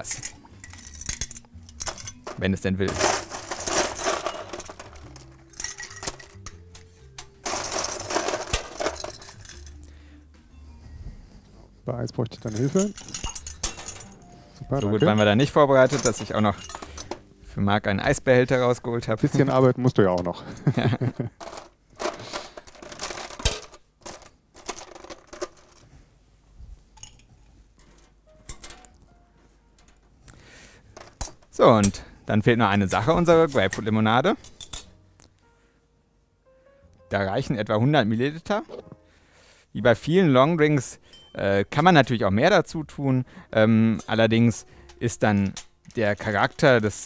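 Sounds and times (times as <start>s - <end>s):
ice cubes clinking into glass: 0.0s - 6.6s, 7.4s - 9.8s.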